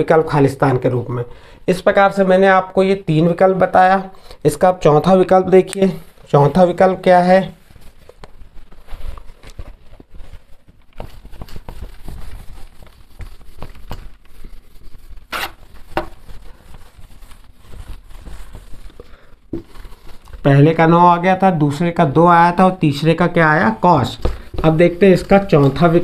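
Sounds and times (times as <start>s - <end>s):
whiteboard squeaks: 15.3s - 15.6s.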